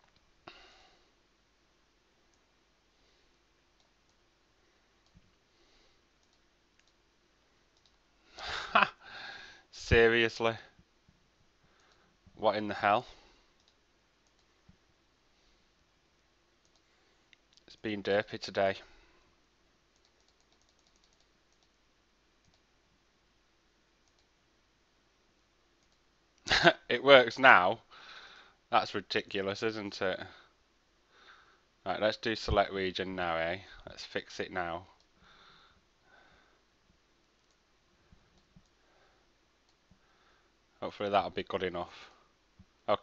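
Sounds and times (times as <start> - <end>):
computer mouse clicks: 6.2 - 7.0, 7.8 - 8.0, 11.8 - 12.1, 13.6 - 14.8, 16.6 - 17.7, 19.9 - 21.8, 22.4 - 22.7, 24.0 - 24.3, 25.8 - 26.0, 37.4 - 37.6.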